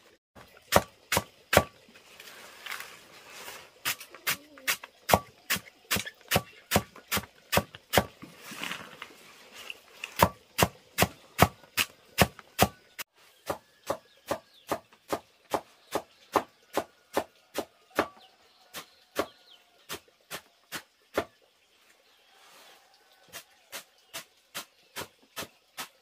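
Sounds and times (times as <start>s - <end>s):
blade chopping wood: 0.7s - 1.8s, 4.7s - 8.3s, 10.1s - 12.8s.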